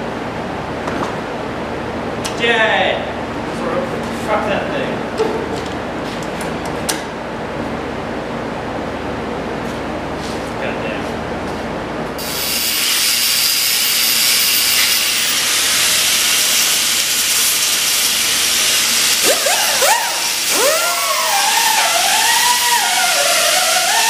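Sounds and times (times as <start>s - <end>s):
grinder cutting steel: 12.2s - 24.0s.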